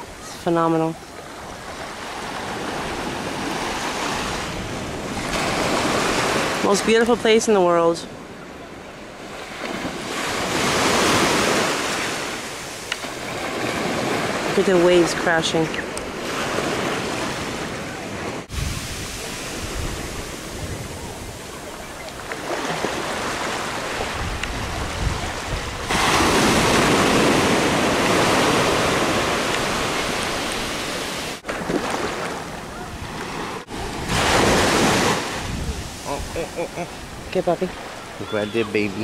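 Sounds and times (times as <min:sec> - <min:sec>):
ocean surf breaking: 0:00.0 - 0:39.0
wind buffeting microphone: 0:18.4 - 0:30.8, 0:32.5 - 0:39.0.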